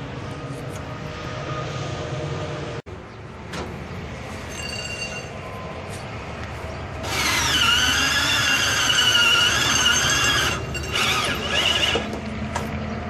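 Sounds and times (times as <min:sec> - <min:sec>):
cordless drill high squeal: 0:07.0 - 0:12.1.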